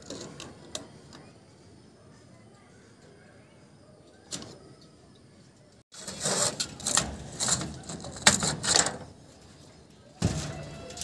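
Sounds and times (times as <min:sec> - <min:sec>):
plastic conduit clattering on steel mesh: 0:06.0 - 0:09.2, 0:10.2 - 0:11.0.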